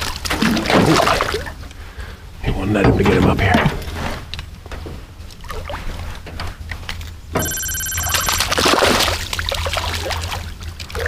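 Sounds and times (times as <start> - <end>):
small splashes and knocks: 0.0 - 1.7, 8.4 - 11.0
bell-like chime: 7.4 - 8.6
fish splashing at surface: 8.2 - 11.0.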